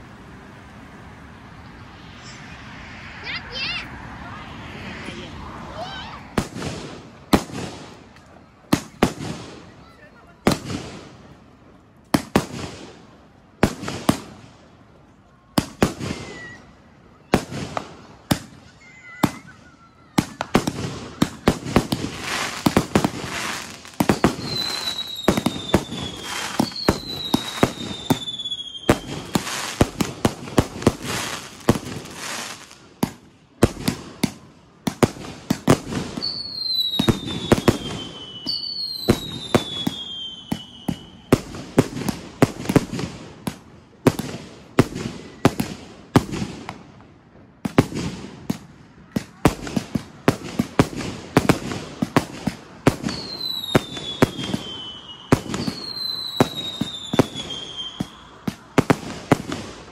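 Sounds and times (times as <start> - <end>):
firework whistles sliding down: 1.5 - 6.4, 22.1 - 29.9, 36.1 - 41.4, 53.0 - 58.4
firecrackers banging and crackling: 6.2 - 14.8, 17.2 - 59.9.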